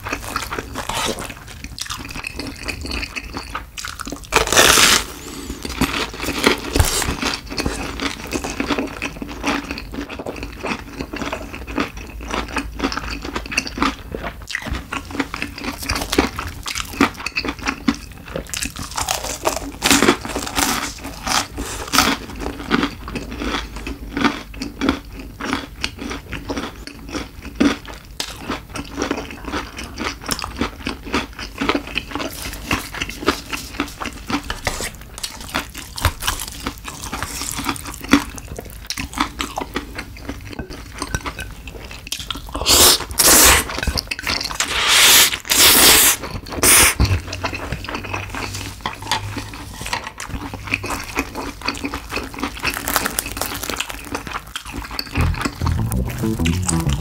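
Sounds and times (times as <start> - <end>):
chewing crispy food: 0.0 - 57.0
wet mouth sounds: 44.6 - 47.1, 55.2 - 57.0.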